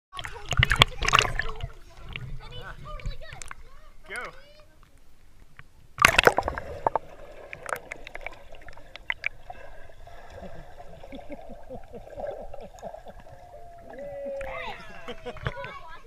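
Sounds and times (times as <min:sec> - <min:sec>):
underwater clicks: 0:00.5 - 0:02.3, 0:03.0 - 0:03.6, 0:05.5 - 0:09.4
splash into pool: 0:06.0 - 0:08.4.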